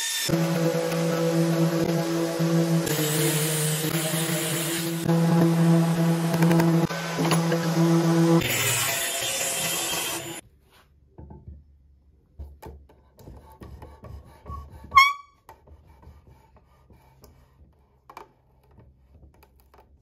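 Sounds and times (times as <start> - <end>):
table saw cutting wood: 0.0 - 10.4.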